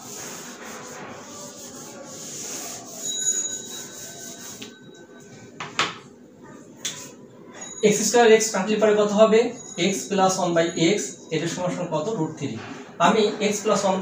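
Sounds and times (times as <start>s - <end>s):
eraser rubbing on whiteboard: 0.0s - 4.7s.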